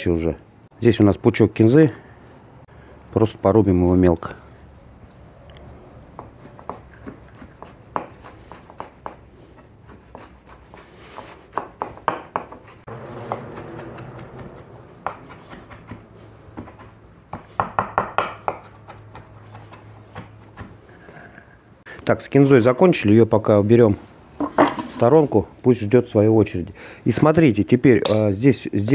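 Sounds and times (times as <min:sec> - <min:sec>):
knife chopping on cutting board: 0:06.2 - 0:09.3, 0:09.9 - 0:16.0, 0:16.6 - 0:20.8.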